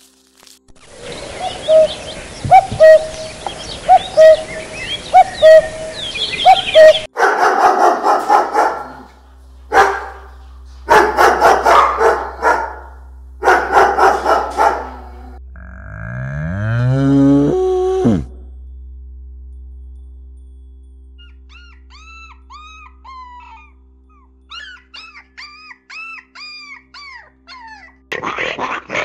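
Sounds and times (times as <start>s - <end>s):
small birds chirping: 0.9s - 7.1s, 21.2s - 27.9s
owl hooting: 1.0s - 7.1s, 21.2s - 26.9s
dog barking rapidly: 6.5s - 9.1s, 9.7s - 10.3s, 10.9s - 15.3s.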